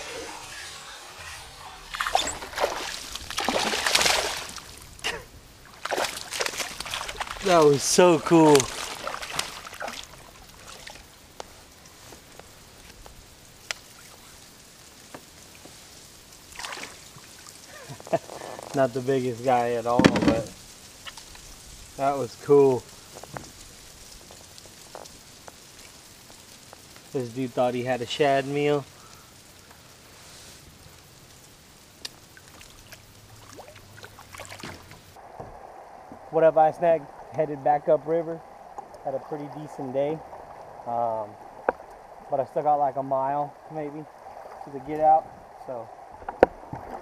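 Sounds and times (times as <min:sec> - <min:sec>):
water drips and splashes: 0:00.4 - 0:35.4, 0:37.0 - 0:47.0.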